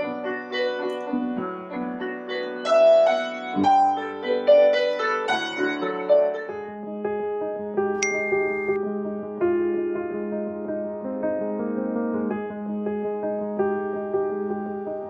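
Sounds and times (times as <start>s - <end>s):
slow soft piano music: 0.0s - 15.0s.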